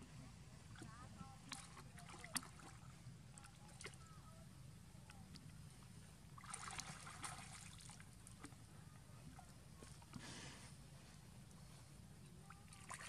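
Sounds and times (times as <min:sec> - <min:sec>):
low steady rumble: 0:00.0 - 0:13.0
water sloshing and trickling: 0:00.0 - 0:13.0
water splash: 0:06.4 - 0:08.5.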